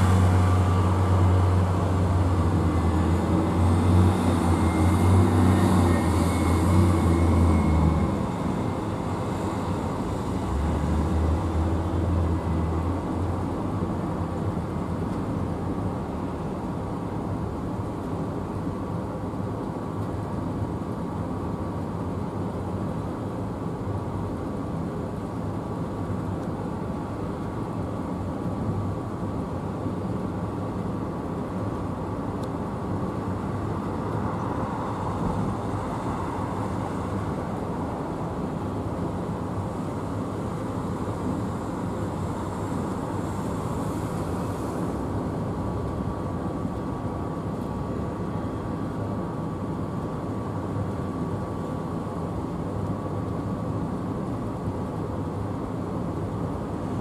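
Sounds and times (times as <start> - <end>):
jet engines rumbling: 0.0 - 13.4.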